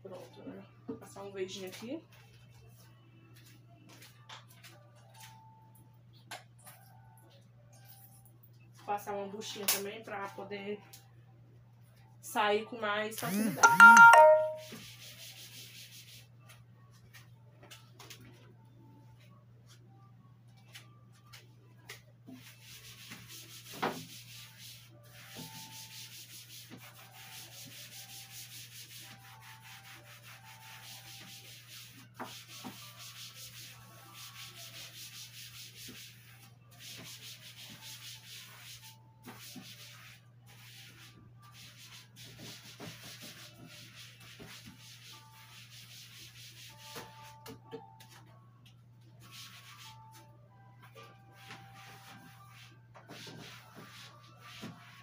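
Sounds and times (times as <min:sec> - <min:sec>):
sponge rubbing a surface: 0:14.7 - 0:16.3, 0:22.3 - 0:47.4, 0:49.2 - 0:50.2, 0:51.3 - 0:55.0.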